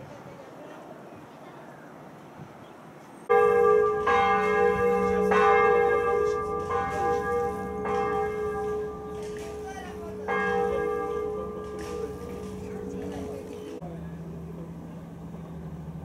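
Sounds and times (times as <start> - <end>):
church bell tolling: 3.3 - 13.8.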